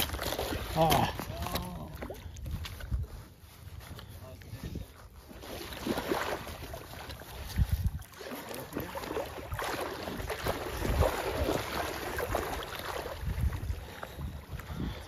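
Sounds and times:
fish thrashing and splashing: 0.0s - 2.4s, 5.4s - 14.3s
wind buffeting microphone: 0.0s - 5.2s, 5.8s - 8.2s, 8.8s - 15.0s.

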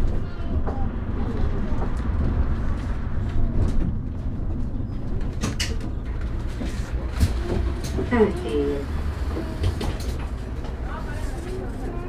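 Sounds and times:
rattles and knocks: 0.0s - 8.4s
bus engine and road rumble: 0.0s - 12.0s.

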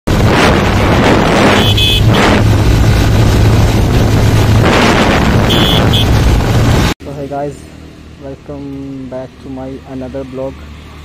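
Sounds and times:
wind rushing over microphone: 0.1s - 7.0s
motorcycle engine hum: 0.1s - 11.0s.

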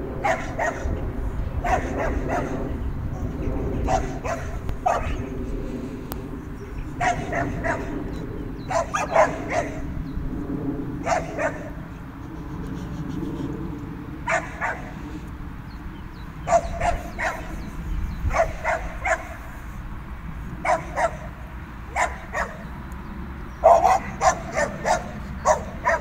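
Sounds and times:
dog barking: 0.2s - 0.9s, 1.6s - 2.6s, 3.9s - 5.2s, 7.0s - 8.0s, 8.7s - 9.9s, 11.0s - 11.8s, 14.3s - 14.9s, 16.4s - 17.5s, 18.3s - 19.4s, 20.6s - 21.3s, 21.9s - 22.6s, 23.6s - 26.0s.

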